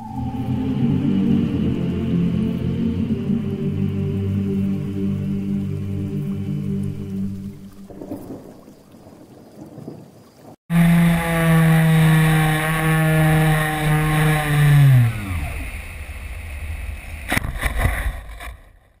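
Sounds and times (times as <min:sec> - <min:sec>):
model airplane motor and propeller: 0:10.7 - 0:17.0.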